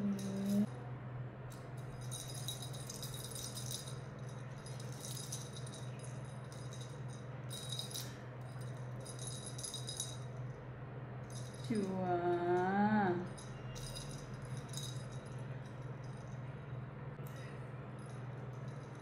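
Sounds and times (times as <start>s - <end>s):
small jingle bells jingling: 0.0s - 0.7s, 1.8s - 10.5s, 11.2s - 16.5s
steady low hum: 0.0s - 19.0s.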